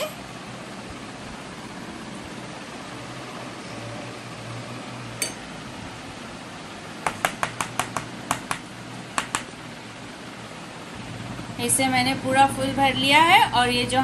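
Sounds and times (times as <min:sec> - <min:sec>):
knife tapping on steel plate: 0:05.2 - 0:05.4, 0:07.1 - 0:08.6, 0:09.2 - 0:09.5.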